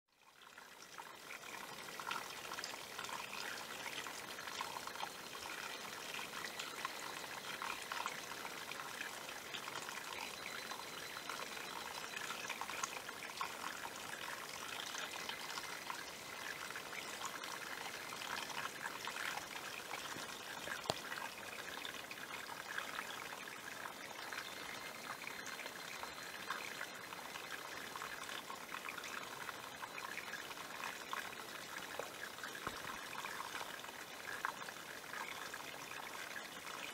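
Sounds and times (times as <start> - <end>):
stream trickling over rocks: 0.1 - 36.9.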